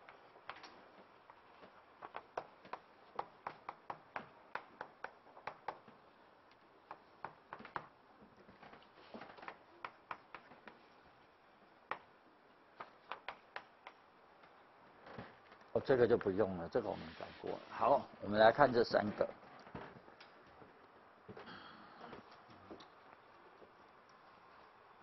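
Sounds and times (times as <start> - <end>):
chalk tapping on blackboard: 2.0 - 5.9, 9.4 - 11.0, 12.8 - 14.0.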